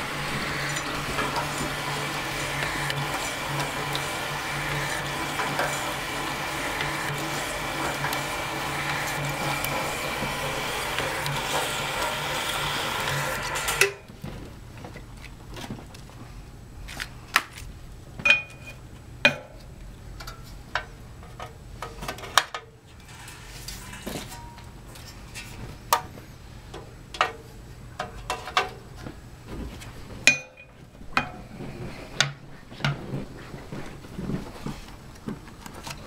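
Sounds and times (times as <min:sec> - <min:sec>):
card slitter motor humming: 0:00.0 - 0:14.2.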